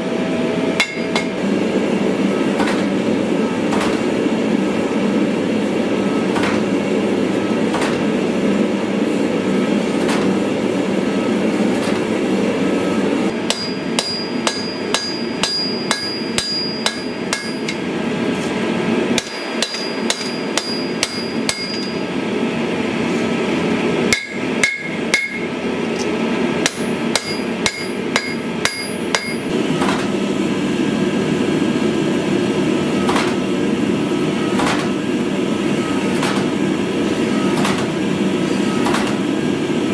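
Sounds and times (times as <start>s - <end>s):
hammer ringing on hot metal: 0.8s - 1.4s, 13.4s - 17.8s, 19.2s - 22.1s, 24.1s - 25.6s, 26.6s - 29.5s.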